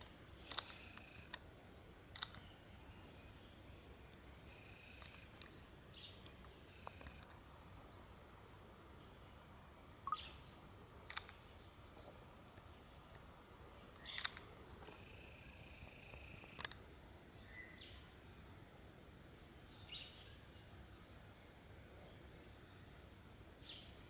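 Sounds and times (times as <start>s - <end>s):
sharp clicks: 0.0s - 1.4s, 2.1s - 2.5s, 11.1s - 11.4s, 14.0s - 15.0s
high bird chirps: 10.0s - 10.4s.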